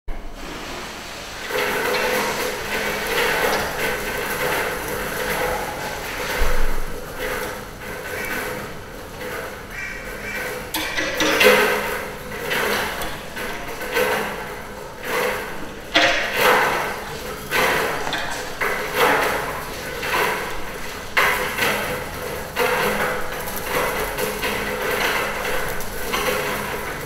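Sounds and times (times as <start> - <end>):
steel springs clanking and ringing: 10.0 - 14.5, 15.1 - 21.5.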